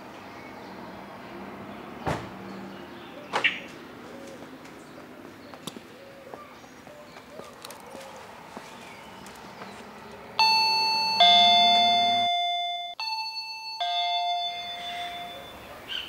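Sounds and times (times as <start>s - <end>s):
birds calling: 0.0s - 12.5s, 13.9s - 16.0s
footsteps on pavement: 3.4s - 10.3s.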